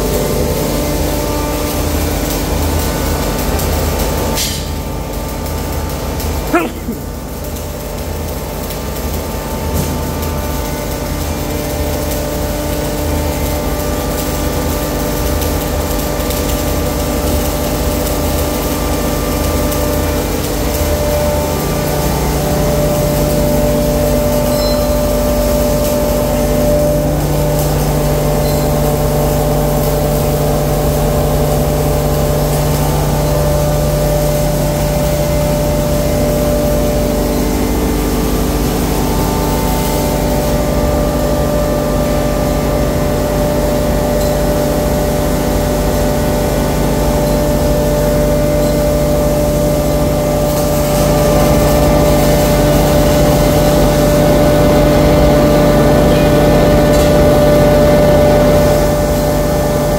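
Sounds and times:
pulverizer machine drone: 0.0s - 59.9s.

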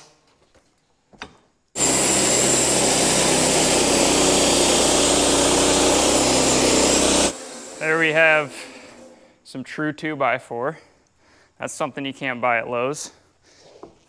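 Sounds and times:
bandsaw mill cutting wood: 1.8s - 9.1s.

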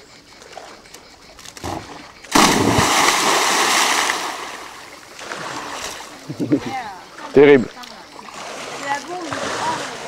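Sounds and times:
loud splash into pool: 2.3s - 4.6s.

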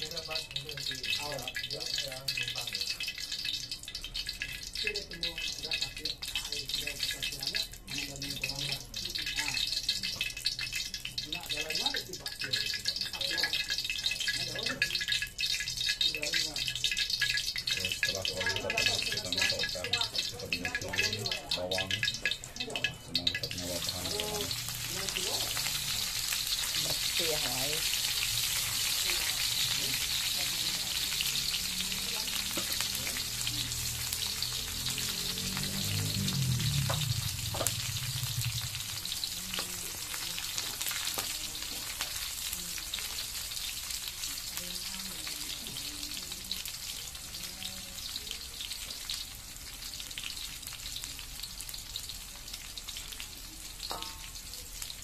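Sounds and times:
food sizzling in hot oil: 0.0s - 55.0s
metal ladle scraping wok: 21.9s - 40.1s.

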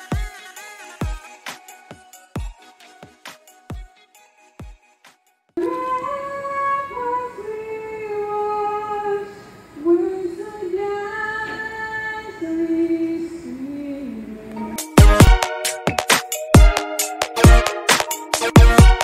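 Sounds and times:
woman singing unaccompanied: 5.6s - 15.0s.

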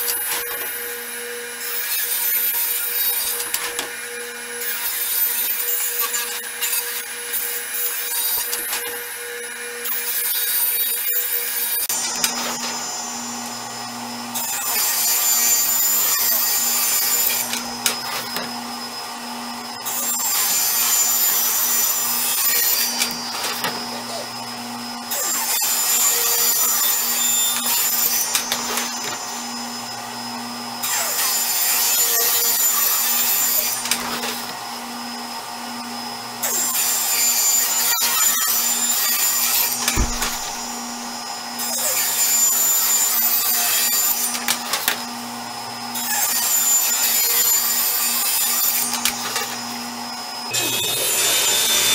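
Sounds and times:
saw blade cutting plywood: 0.0s - 51.9s
table saw running: 0.0s - 51.9s
shop vacuum drawing dust: 50.5s - 51.9s.

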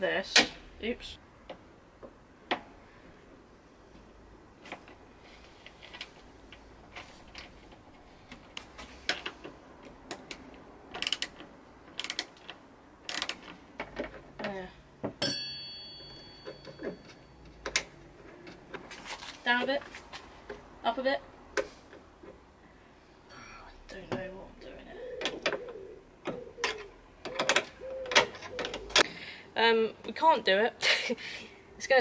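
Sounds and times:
metal clicks and creaks: 4.6s - 15.2s, 16.0s - 20.7s, 25.1s - 29.1s
sharp metallic clink: 15.2s - 17.1s.

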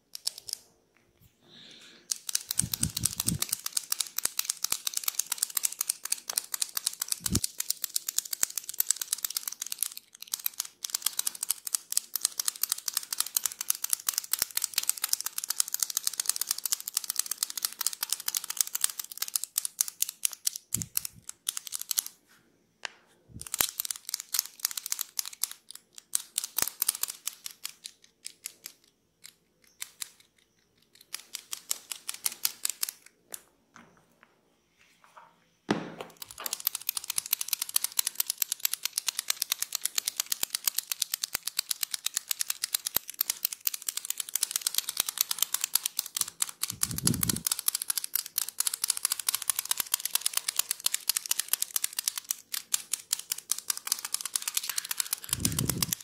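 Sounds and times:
fine crackling of massage tool: 54.5s - 56.0s.

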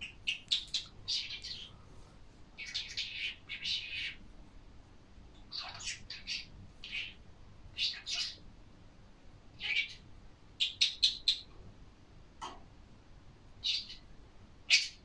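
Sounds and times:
budgerigar chirping and chattering: 0.0s - 1.7s, 2.6s - 4.2s, 5.5s - 7.2s, 7.8s - 8.4s, 9.6s - 10.0s, 10.6s - 11.5s, 13.6s - 14.1s, 14.7s - 15.0s.

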